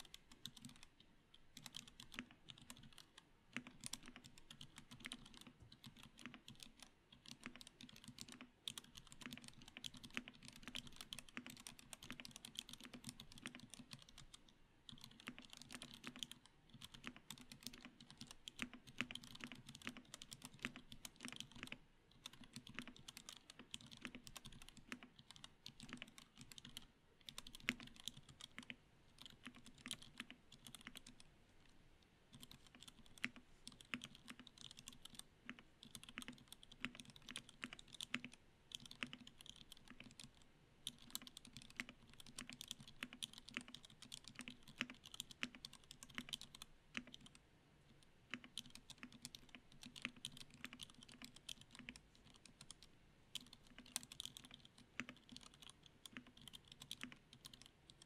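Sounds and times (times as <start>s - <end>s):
mechanical keyboard typing: 0.0s - 31.3s, 32.3s - 47.4s, 48.2s - 58.0s.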